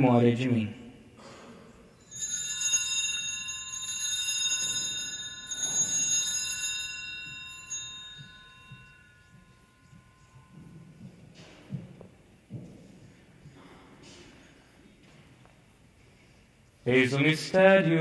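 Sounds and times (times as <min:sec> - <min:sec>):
altar bells ringing: 0:01.8 - 0:13.7.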